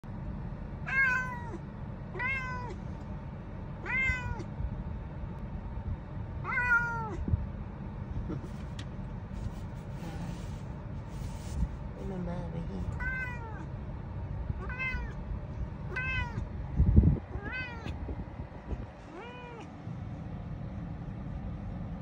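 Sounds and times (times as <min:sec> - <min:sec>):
low steady hum: 0:00.0 - 0:22.0
cat meowing: 0:00.9 - 0:02.8, 0:03.8 - 0:04.5, 0:06.4 - 0:07.3, 0:12.9 - 0:13.7, 0:14.6 - 0:15.2, 0:15.9 - 0:16.5, 0:17.3 - 0:18.0, 0:19.1 - 0:19.7.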